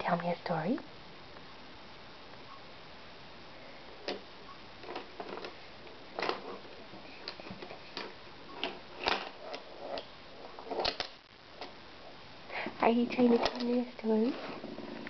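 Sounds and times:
plastic toys clacking: 4.8s - 11.8s, 13.2s - 13.8s.

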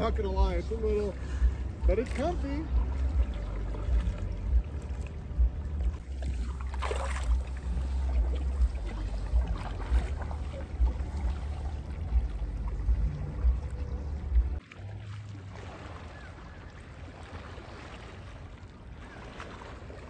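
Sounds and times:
low rumble: 0.0s - 15.6s
paddle splashing through water: 0.0s - 20.0s.

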